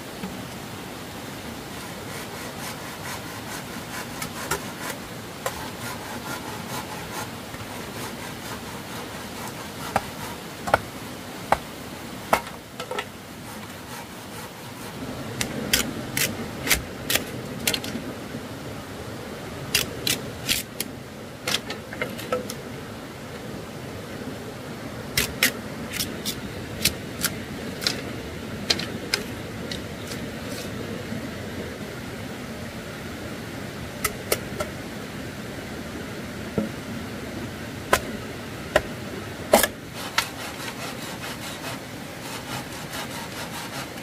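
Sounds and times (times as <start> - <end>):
rubbing and scraping on wood: 1.7 - 11.7, 12.3 - 17.9, 25.2 - 30.8, 39.5 - 44.0.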